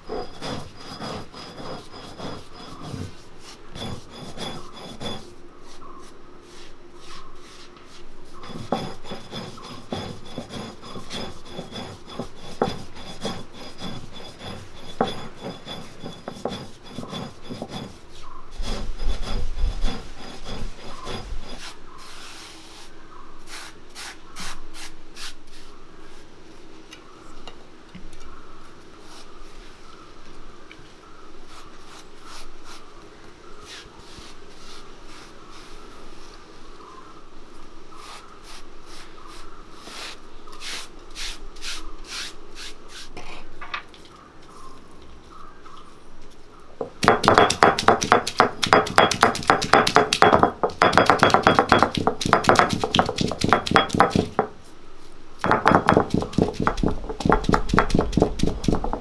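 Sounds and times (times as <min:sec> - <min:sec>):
rough rubbing and scraping: 0:00.0 - 0:22.9, 0:47.0 - 0:59.0.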